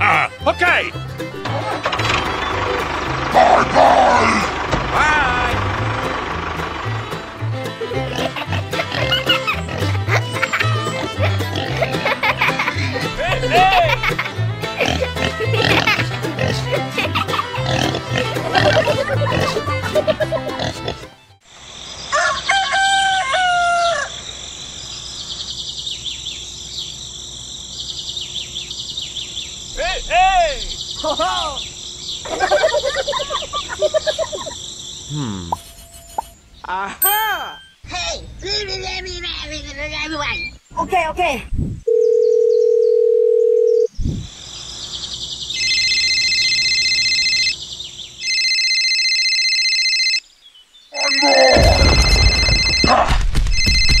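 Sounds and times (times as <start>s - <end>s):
small birds chirping: 2.2s - 6.2s, 6.8s - 13.7s, 23.6s - 41.7s, 43.9s - 48.4s
rooster crowing: 22.1s - 24.3s
trilling electronic phone ringtone: 41.9s - 43.9s, 45.6s - 47.6s, 48.2s - 50.2s, 51.0s - 54.0s.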